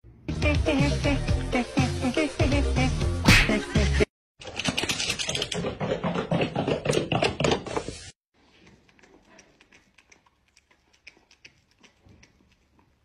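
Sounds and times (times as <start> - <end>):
cat chewing corn: 8.4 - 13.0.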